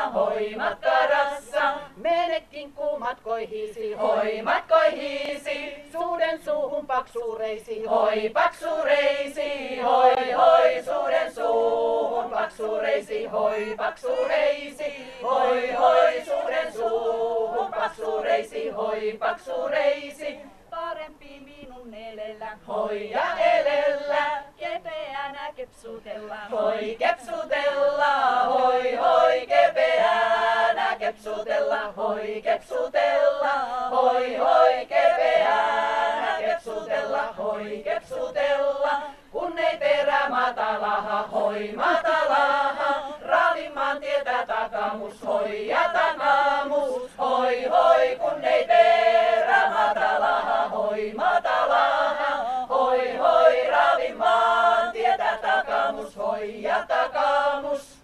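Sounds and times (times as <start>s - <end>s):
women singing a cappella folk song: 0.0s - 58.0s.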